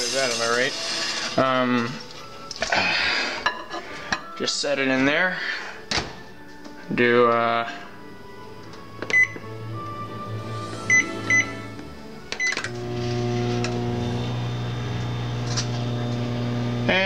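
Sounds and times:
microwave keypad beeps: 9.1 - 9.4, 10.9 - 11.5
microwave running hum: 12.7 - 17.0.

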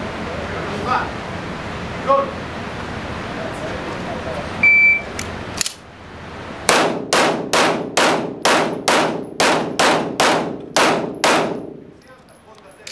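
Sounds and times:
pistol shots echoing indoors: 6.7 - 11.8.

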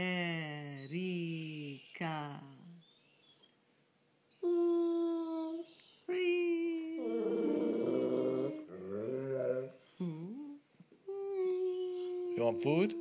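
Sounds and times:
person humming: 4.4 - 13.0
dog howling: 7.0 - 9.8, 11.4 - 13.0.

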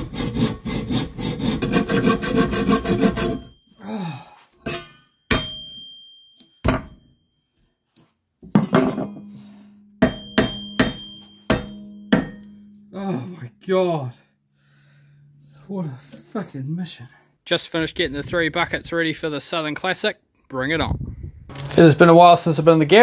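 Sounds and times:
hacksaw sawing metal: 0.0 - 3.6
hammer blows on metal: 9.1 - 13.3.

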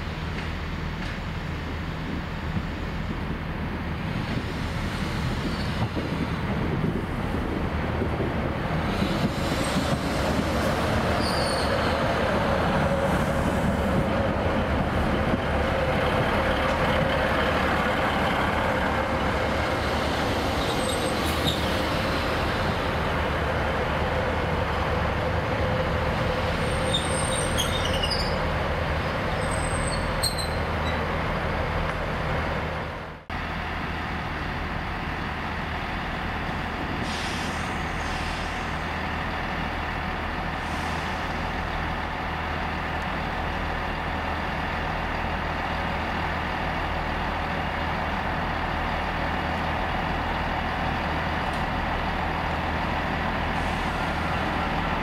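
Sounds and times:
diesel train engines running: 0.0 - 55.0
steady train hum: 0.0 - 55.0
wheel and brake squeals: 11.2 - 12.0, 20.5 - 21.8, 26.6 - 28.5, 29.4 - 31.0.

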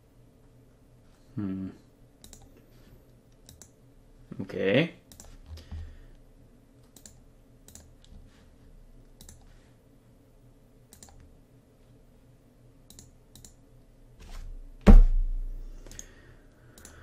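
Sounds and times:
low steady hum: 0.0 - 17.0
computer mouse clicks: 2.2 - 2.6, 3.3 - 3.8, 5.1 - 5.8, 6.8 - 8.2, 9.0 - 9.6, 10.9 - 11.3, 12.9 - 13.6, 15.9 - 17.0.

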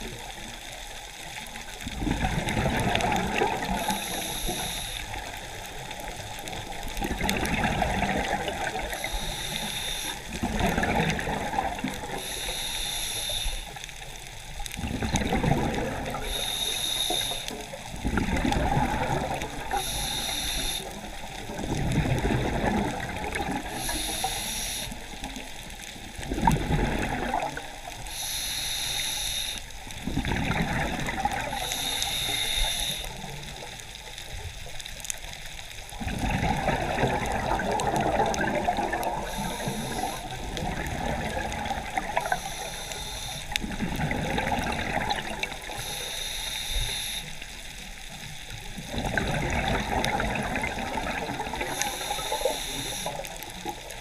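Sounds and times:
exhaled bubbles gurgling: 0.0 - 54.0
regulator hissing inhales: 3.8 - 5.2, 8.9 - 10.3, 12.2 - 13.8, 16.2 - 17.6, 19.7 - 21.0, 23.7 - 25.1, 28.0 - 29.7, 31.6 - 33.3, 39.2 - 40.3, 42.3 - 43.6, 45.7 - 47.4, 51.7 - 53.4.

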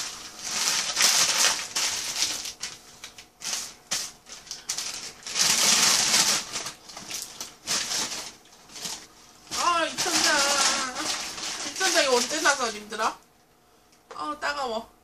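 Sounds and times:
paper bag crinkling: 0.0 - 13.0.

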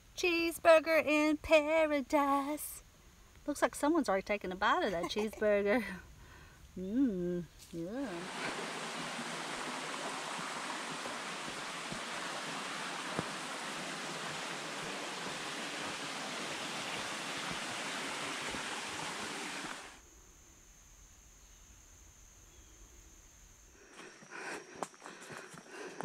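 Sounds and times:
creek water running over rocks: 7.6 - 20.0.

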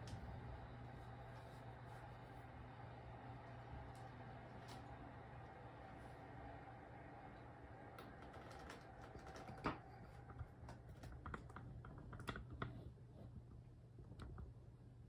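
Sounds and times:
low steady hum: 0.0 - 15.0
small clicks and taps: 8.0 - 12.8.

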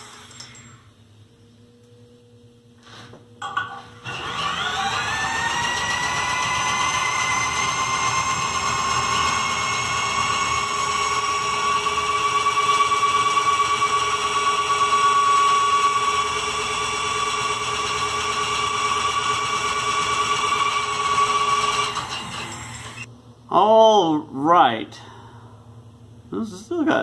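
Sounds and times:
power drill whining: 0.0 - 0.8, 4.0 - 23.1.

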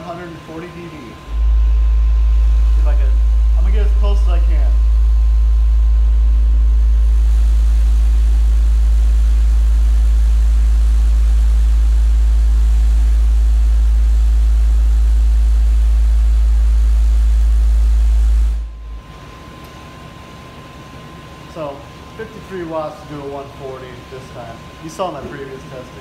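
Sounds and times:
deep subwoofer drone: 0.0 - 19.6.

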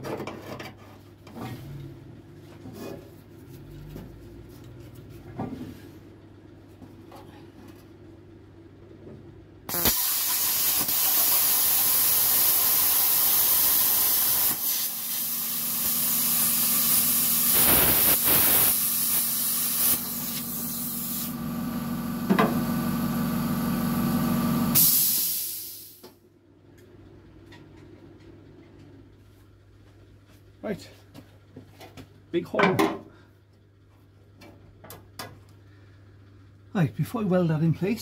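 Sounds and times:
plasma cutter hissing: 9.7 - 21.4, 24.8 - 26.0
arc crackle: 16.9 - 21.2.

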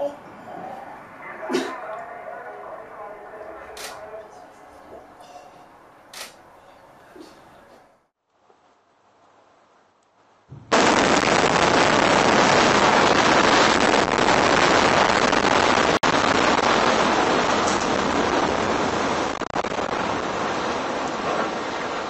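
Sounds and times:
explosive charges going off: 10.6 - 22.0.

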